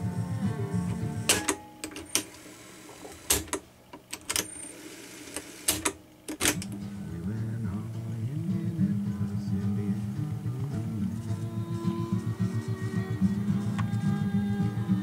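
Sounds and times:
music playing from tape: 0.0 - 3.4, 6.4 - 15.0
cassette deck buttons clunking: 1.3 - 2.3, 5.7 - 6.8.

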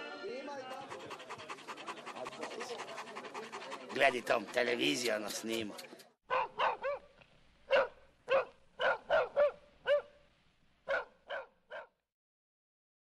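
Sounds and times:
dog barking: 6.3 - 7.1, 7.7 - 10.2, 10.9 - 12.0.

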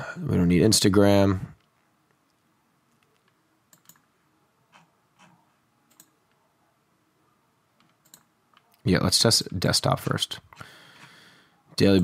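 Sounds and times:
faint computer clicks: 3.0 - 4.0, 7.8 - 8.8.

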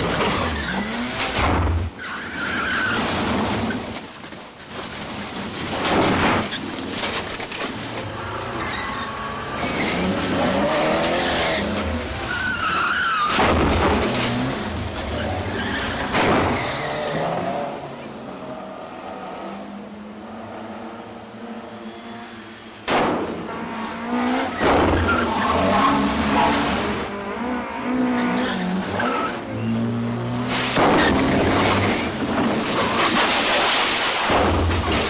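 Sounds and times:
tyres squealing and skidding: 0.0 - 4.0, 6.4 - 17.7, 23.6 - 34.2
car engines revving: 8.0 - 33.4.

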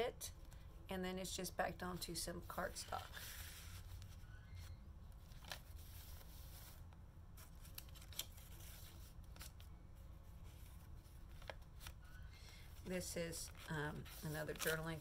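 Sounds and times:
low steady hum: 0.0 - 15.0
paper pages rustling: 2.6 - 6.8, 7.4 - 15.0.

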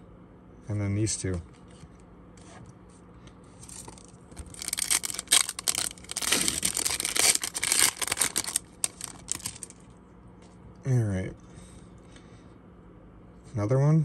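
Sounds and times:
foil wrapper crinkling and tearing: 3.6 - 9.8.

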